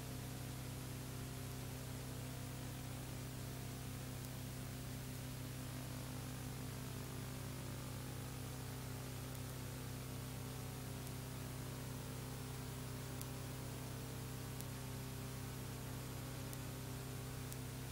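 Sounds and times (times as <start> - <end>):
low electrical hum: 0.0 - 17.9
tape hiss: 0.0 - 17.9
faint ticks: 4.1 - 4.5, 9.2 - 9.6, 13.0 - 13.7, 14.5 - 14.8, 15.6 - 17.9.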